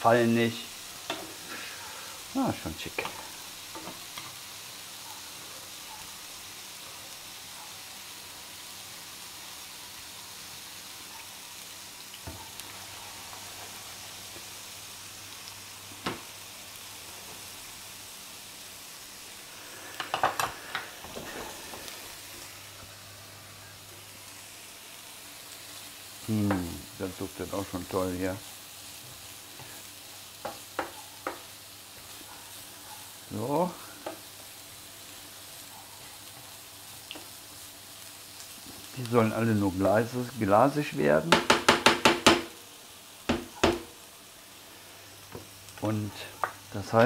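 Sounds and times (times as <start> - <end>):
food sizzling in pans: 0.0 - 47.0
utensils clicking against pans: 1.0 - 1.4, 3.0 - 4.4, 20.0 - 21.9.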